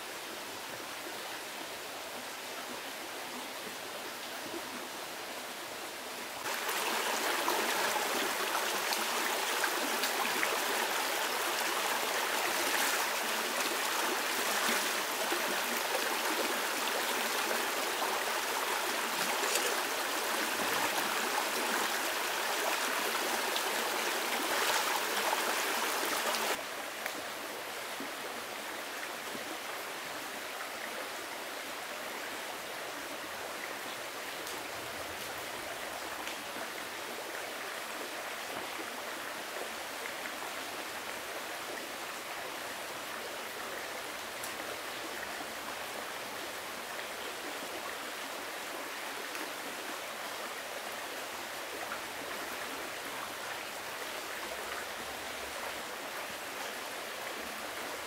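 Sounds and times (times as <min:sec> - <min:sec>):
stream running: 0:00.0 - 0:58.0
loud rush of water: 0:06.3 - 0:26.9.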